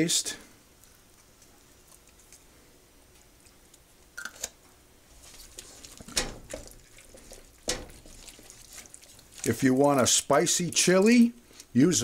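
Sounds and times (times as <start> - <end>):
wooden spoon stirring thick mix: 5.1 - 11.9.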